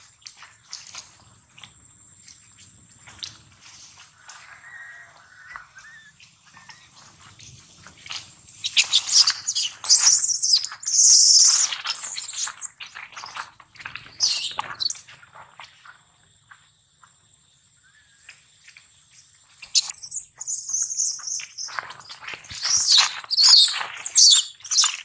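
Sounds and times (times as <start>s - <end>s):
baby monkey screaming: 4.4s - 7.0s, 8.7s - 12.6s, 14.2s - 14.9s.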